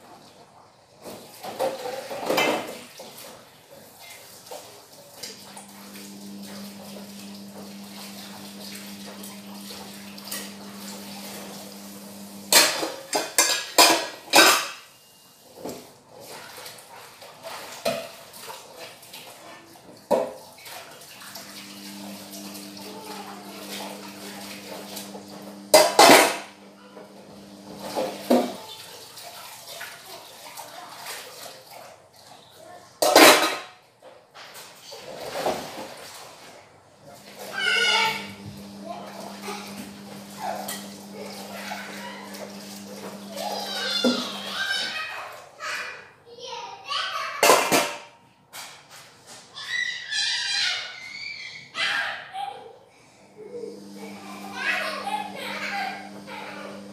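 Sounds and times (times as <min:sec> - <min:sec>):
dishes and cutlery clattering: 0:01.2 - 0:03.2, 0:12.5 - 0:14.9, 0:25.8 - 0:26.5, 0:33.0 - 0:35.8, 0:40.4 - 0:43.2, 0:47.4 - 0:49.2
pots clanging down: 0:01.4 - 0:02.9, 0:05.9 - 0:15.0, 0:21.5 - 0:28.6, 0:33.0 - 0:33.8, 0:37.6 - 0:44.5, 0:47.4 - 0:48.9.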